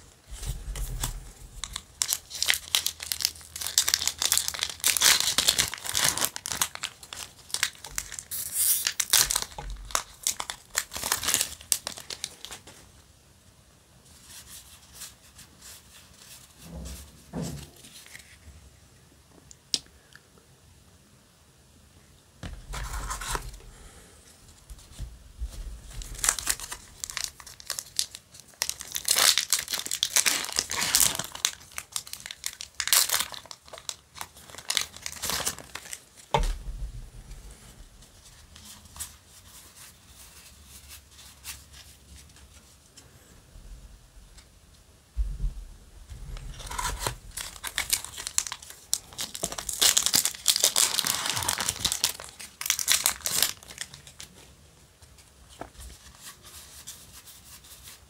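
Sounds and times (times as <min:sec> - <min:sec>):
foil pack crinkling and tearing: 0:00.4 - 0:12.7, 0:25.8 - 0:36.4, 0:46.5 - 0:54.3.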